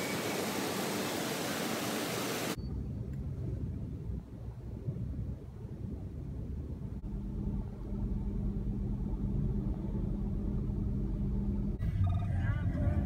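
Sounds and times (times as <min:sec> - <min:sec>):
road traffic rumble: 0:00.0 - 0:13.0
car engine hum: 0:06.9 - 0:13.0.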